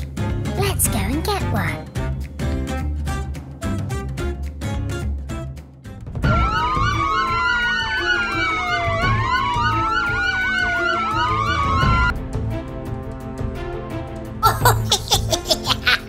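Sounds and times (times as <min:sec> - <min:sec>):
background music with steady beat: 0:00.0 - 0:16.0
siren wailing and warbling: 0:06.3 - 0:12.1.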